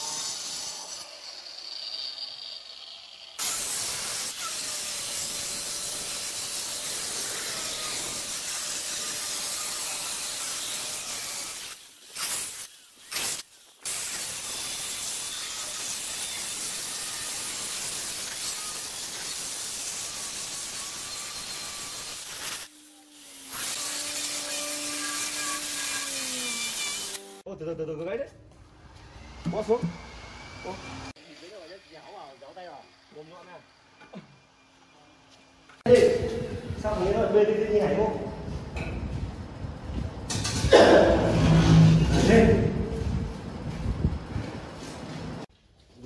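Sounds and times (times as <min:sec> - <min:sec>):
stone saw grinding: 0:00.0 - 0:27.4.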